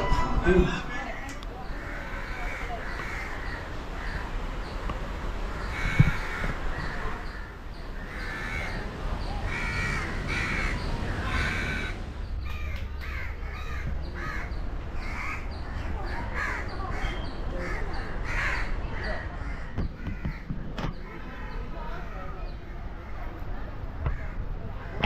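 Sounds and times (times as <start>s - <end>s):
birds harsh calls: 0.0s - 25.0s.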